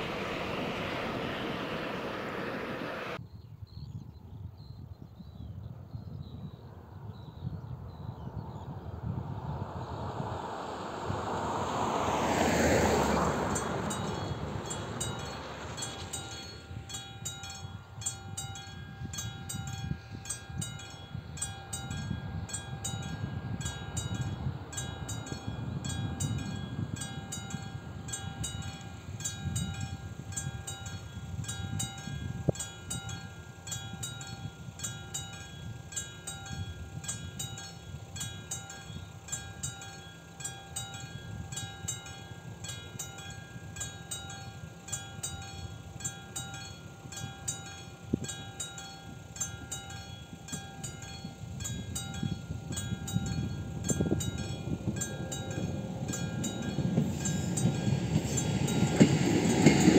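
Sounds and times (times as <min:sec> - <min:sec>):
car tyre noise: 0:00.0 - 0:03.2
low wind rumble: 0:00.0 - 0:59.9
level crossing bell ringing: 0:13.6 - 0:59.1.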